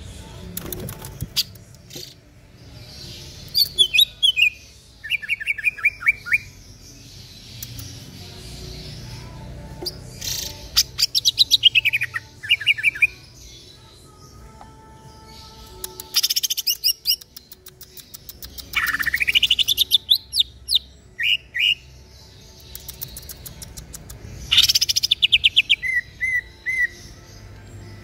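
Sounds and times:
bird singing whistled notes: 2.8s - 9.1s, 15.2s - 28.0s
fast repeated bird chirps: 15.8s - 21.8s, 22.6s - 26.9s.

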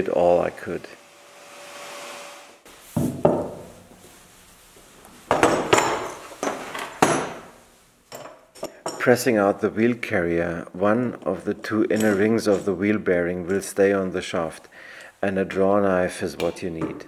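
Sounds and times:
metal knocks on wooden workbench: 3.0s - 3.7s.

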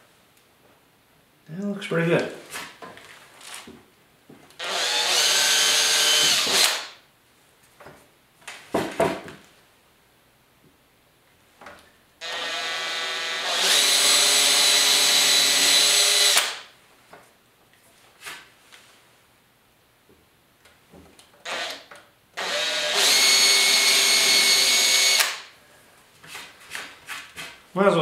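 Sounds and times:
cordless drill boring: 4.6s - 6.9s, 12.2s - 16.6s, 21.4s - 25.5s.

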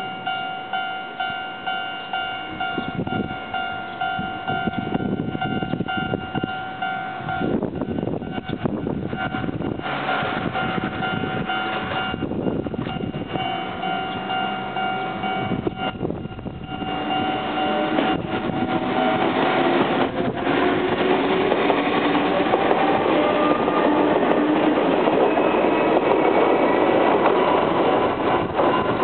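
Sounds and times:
level crossing bell clanging: 0.0s - 19.8s
train rumble: 0.0s - 29.0s
wind buffeting microphone: 2.4s - 29.0s
level crossing alarm ringing: 10.4s - 20.8s.

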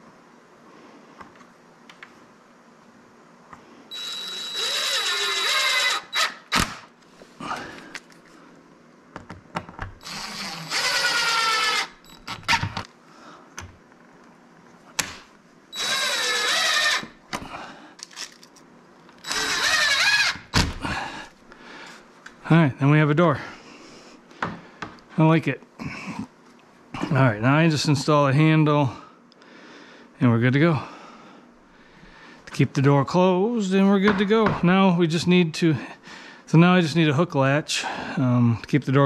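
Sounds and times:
impact driver driving screws: 3.9s - 6.9s, 10.0s - 12.8s, 19.2s - 20.4s.

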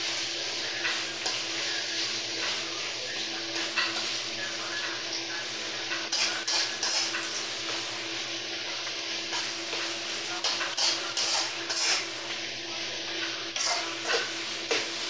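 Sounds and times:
meat sizzling in a wok: 0.0s - 15.0s
spatula scraping and knocking pan: 3.5s - 5.0s, 5.8s - 12.4s, 13.1s - 15.0s.

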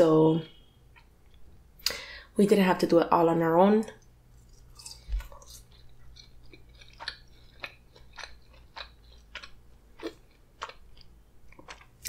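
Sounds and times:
person chewing fries: 4.3s - 12.0s.

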